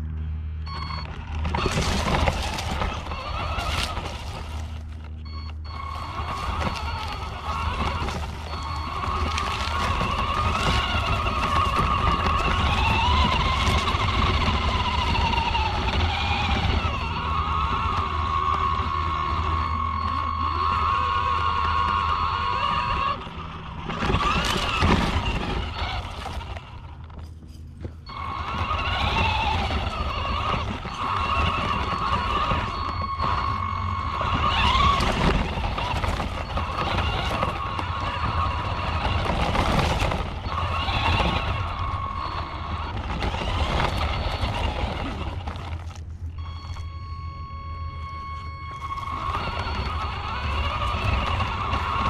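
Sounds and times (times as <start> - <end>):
electric motor whining: 0.0 - 27.2, 27.9 - 52.0
chassis and tyres rattling on dirt: 0.0 - 52.0.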